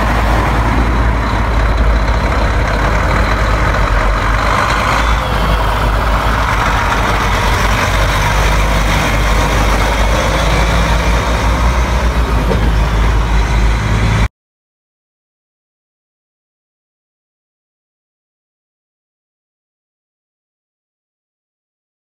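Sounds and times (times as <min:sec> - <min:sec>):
road noise: 0:00.0 - 0:14.3
truck diesel engine rumble: 0:00.0 - 0:14.3.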